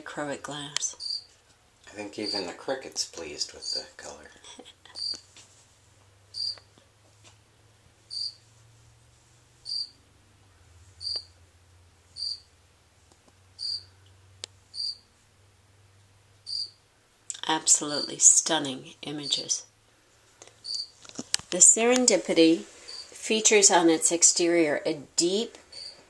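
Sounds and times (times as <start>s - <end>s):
cricket chirping: 1.0s - 1.3s, 2.0s - 2.6s, 3.6s - 3.9s, 5.0s - 5.2s, 6.3s - 6.6s, 8.1s - 8.4s, 9.6s - 10.0s, 11.0s - 11.4s, 12.2s - 12.5s, 13.6s - 13.9s, 14.7s - 15.1s, 16.4s - 16.8s, 20.6s - 20.9s, 22.9s - 23.1s, 25.7s - 26.0s.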